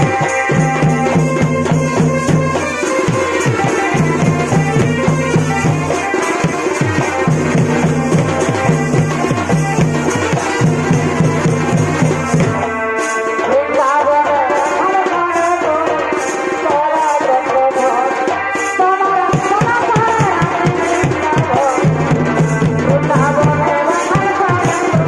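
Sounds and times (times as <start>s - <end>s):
drums beating fast rhythm: 0.0s - 25.0s
reed pipe melody: 0.0s - 25.0s.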